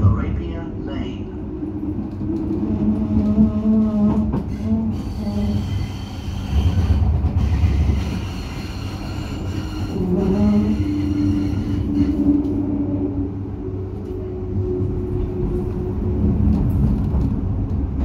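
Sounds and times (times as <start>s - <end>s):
tram rumbling along track: 0.0s - 18.0s
high-pitched wheel squeal: 4.4s - 12.6s.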